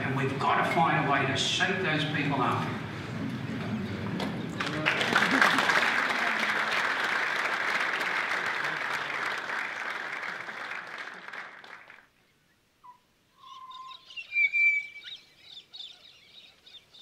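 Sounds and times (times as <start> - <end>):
applause: 4.2 - 12.1
birdsong: 12.0 - 17.0.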